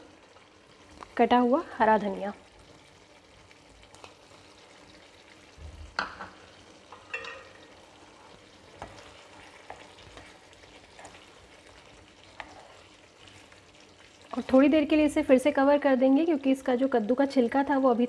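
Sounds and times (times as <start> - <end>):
food sizzling in frying pan: 0.0 - 18.0
spatula scraping a pan: 6.9 - 14.5.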